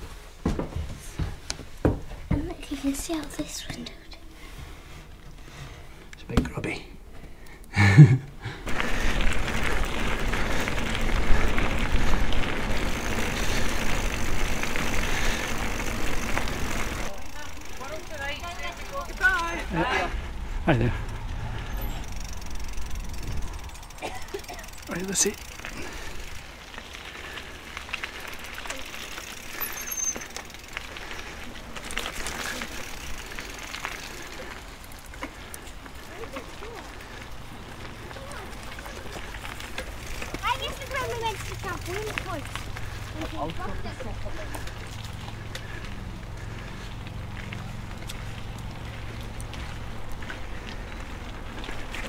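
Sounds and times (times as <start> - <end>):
bike tyres rolling on gravel: 0.0 - 52.0
high squeak: 29.7 - 30.4.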